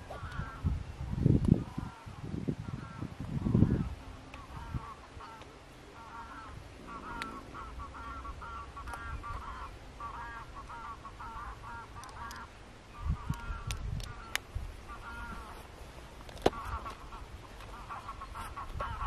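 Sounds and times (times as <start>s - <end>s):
geese honking: 3.6s - 15.7s, 16.5s - 19.0s.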